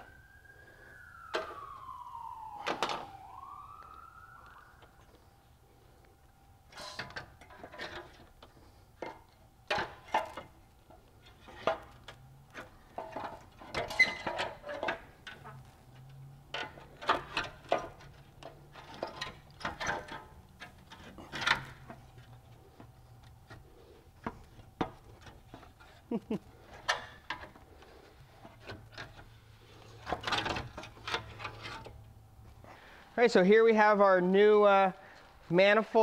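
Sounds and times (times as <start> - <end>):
metal clunks and scrapes: 6.7 - 26.1, 26.7 - 32.6.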